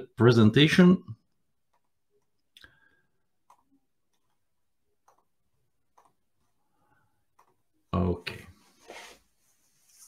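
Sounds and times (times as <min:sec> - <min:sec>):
computer mouse clicks: 0:05.0 - 0:06.3, 0:07.3 - 0:07.6.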